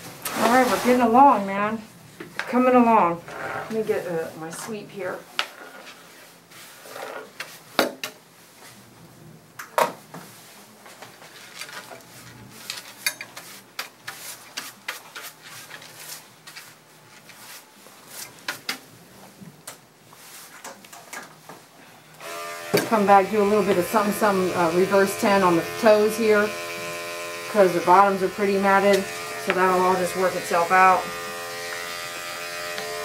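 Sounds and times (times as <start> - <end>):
hand broom sweeping: 0.2 - 1.2, 12.1 - 18.5, 20.1 - 20.6.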